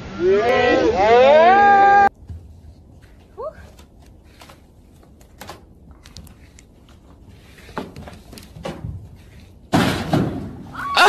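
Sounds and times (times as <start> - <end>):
bare feet on wooden boards: 2.1 - 10.9.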